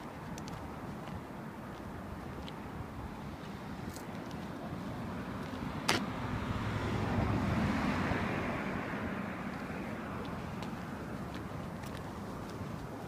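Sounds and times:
car passing by: 4.5s - 12.4s.

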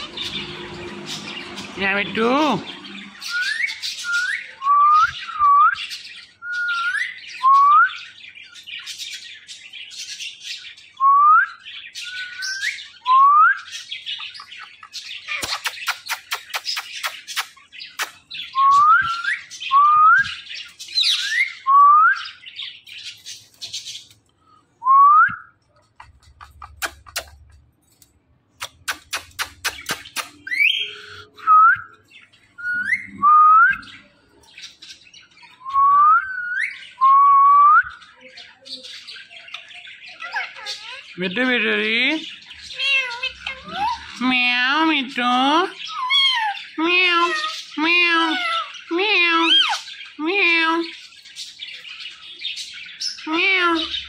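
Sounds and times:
parakeet scratchy chattering: 14.2s - 18.4s, 25.8s - 27.8s, 28.5s - 31.2s, 38.6s - 51.0s
sharp clicks: 26.1s - 30.5s.

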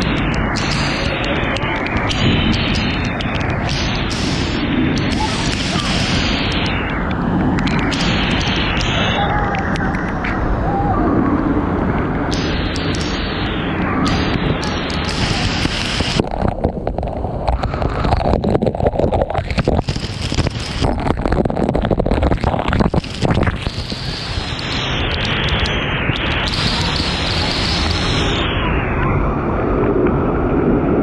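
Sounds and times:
waterfall rushing: 0.0s - 29.8s
water spattering on camera: 14.1s - 28.3s.

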